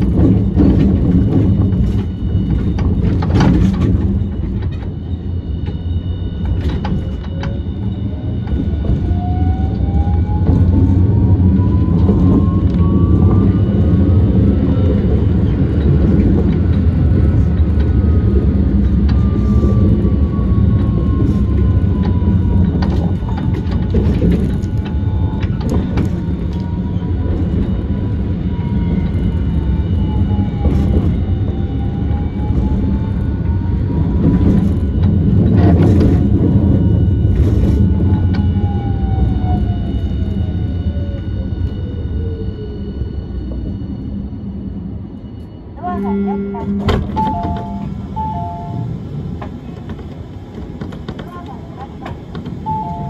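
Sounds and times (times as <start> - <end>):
tram wheels rumbling on track: 0.0 - 53.0
motor whine rising in pitch: 7.6 - 22.8.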